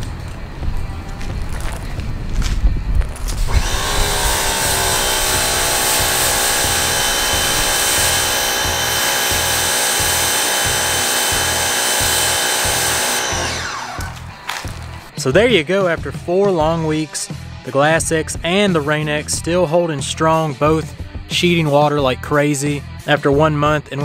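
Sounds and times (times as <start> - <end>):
music with steady beat: 0.0 - 24.0
pressure washer motor whine: 3.3 - 15.1
water spray hissing: 3.4 - 13.2.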